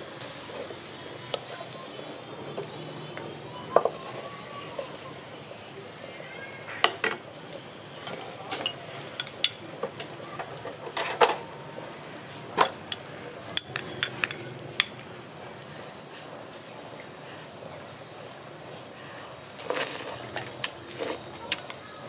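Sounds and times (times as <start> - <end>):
spoon and chopsticks clinking bowl: 8.0 - 9.6, 12.6 - 15.0.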